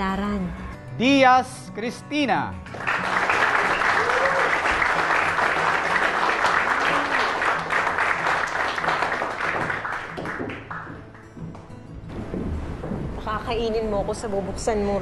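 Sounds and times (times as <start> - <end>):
soft music: 0.0 - 15.0
audience applauding: 2.6 - 11.4.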